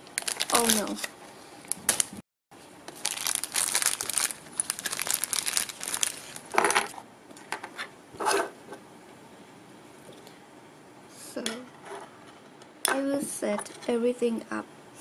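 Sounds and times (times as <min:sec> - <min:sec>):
plastic bag crinkling: 0:00.0 - 0:02.2, 0:02.9 - 0:07.0.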